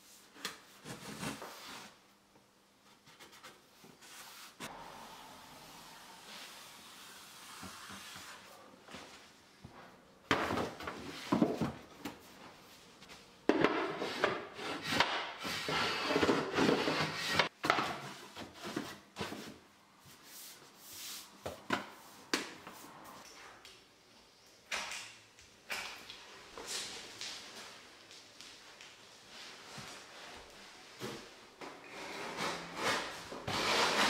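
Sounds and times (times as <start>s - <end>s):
board scraping on floor: 13.6s - 17.5s, 31.8s - 34.0s.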